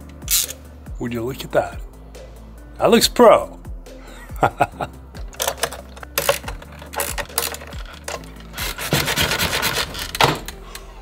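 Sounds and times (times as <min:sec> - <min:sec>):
scraping and rubbing: 0:05.4 - 0:10.6.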